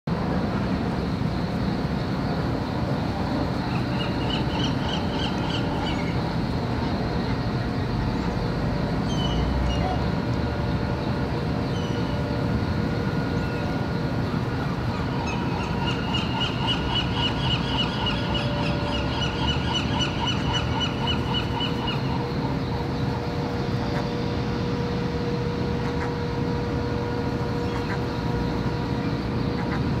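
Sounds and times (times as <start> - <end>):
low rumbling hum: 0.1 - 30.0
gulls calling: 3.1 - 30.0
rapid pulsed bird calls: 3.6 - 8.4, 10.9 - 12.4, 13.0 - 24.4.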